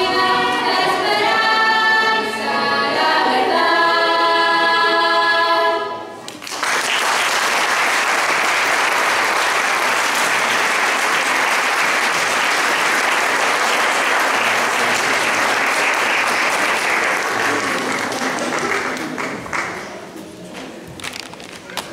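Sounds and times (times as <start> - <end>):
audience applauding: 6.3 - 20.0.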